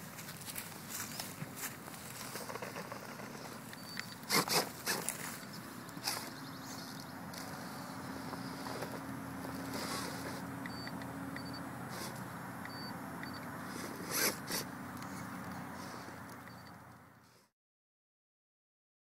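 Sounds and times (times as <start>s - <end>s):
tyres scraping on rock: 1.2s - 6.4s, 8.3s - 10.5s, 13.7s - 15.2s
electric motor whining: 2.1s - 16.8s.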